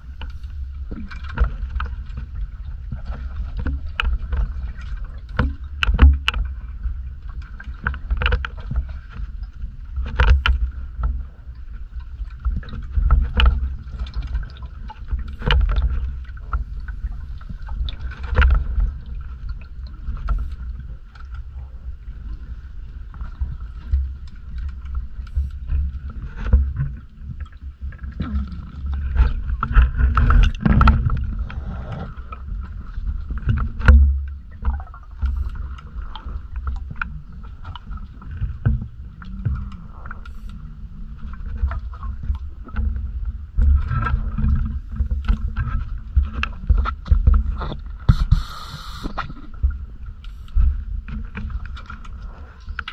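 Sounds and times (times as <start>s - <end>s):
low underwater rumble: 0.0s - 52.9s
sharp clicks and knocks: 46.3s - 49.3s.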